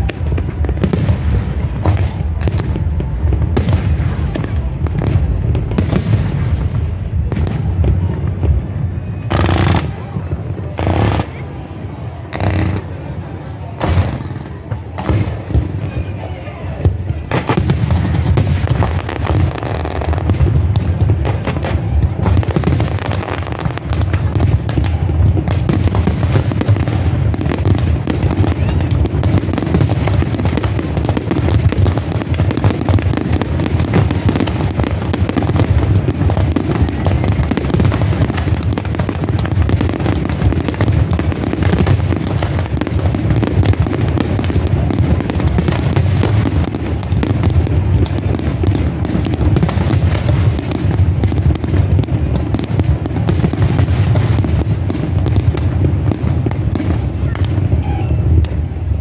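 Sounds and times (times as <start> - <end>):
fireworks booming and crackling: 0.0 - 59.0.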